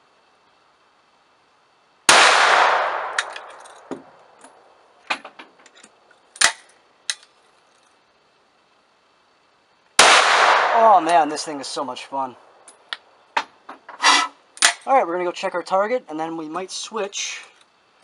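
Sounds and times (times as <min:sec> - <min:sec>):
shotgun shot: 0:02.1 - 0:03.5, 0:10.0 - 0:11.1
gun action metallic clicks: 0:02.6 - 0:04.6.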